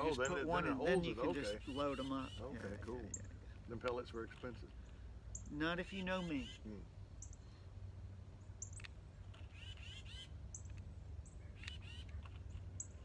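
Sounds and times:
bird chirps: 0:01.4 - 0:07.6, 0:08.4 - 0:13.0
high bird peeps: 0:08.6 - 0:13.0.

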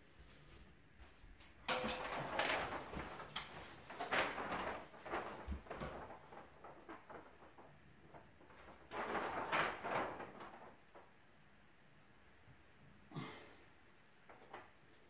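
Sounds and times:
wallpaper rustling and crinkling: 0:00.0 - 0:15.0.

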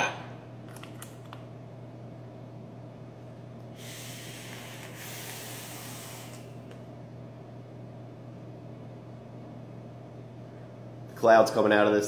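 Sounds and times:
airy hiss of vape draw: 0:03.8 - 0:06.6.

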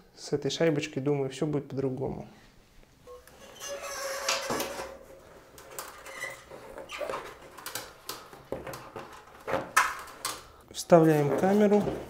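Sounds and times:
rubber squeak: 0:03.1 - 0:04.9, 0:06.0 - 0:07.4
rubber tube rustling and scraping: 0:03.1 - 0:12.0.

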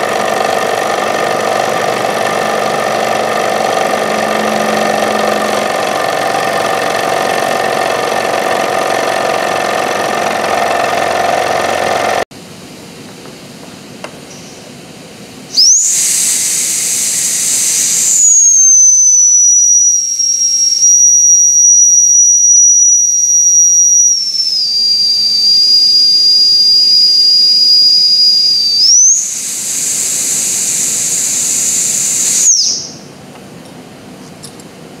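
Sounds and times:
steam whistle blowing: 0:01.6 - 0:07.8, 0:15.5 - 0:33.0
steam hissing: 0:15.5 - 0:21.0, 0:23.4 - 0:33.0.

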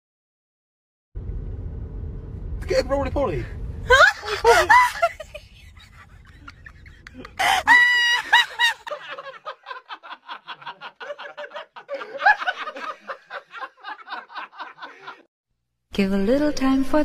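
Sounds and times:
rapid high-pitched cackling laughter: 0:03.9 - 0:15.3.

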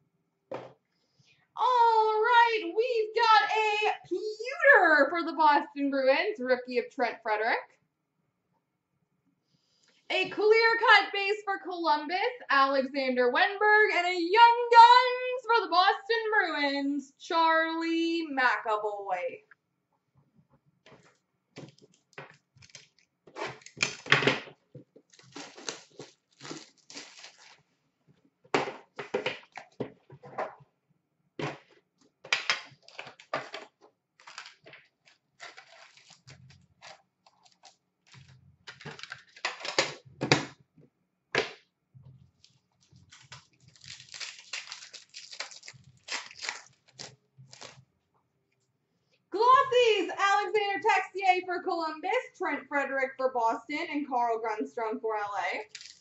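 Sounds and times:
card pack wrappers crinkling: 0:21.6 - 0:24.1, 0:25.0 - 0:27.7, 0:32.6 - 0:33.6, 0:34.2 - 0:40.0, 0:42.3 - 0:47.8, 0:55.7 - 0:56.0.

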